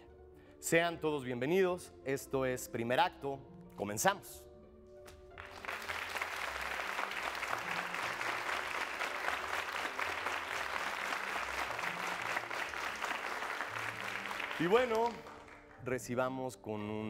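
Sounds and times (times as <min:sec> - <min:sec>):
audience applauding: 0:05.4 - 0:15.9.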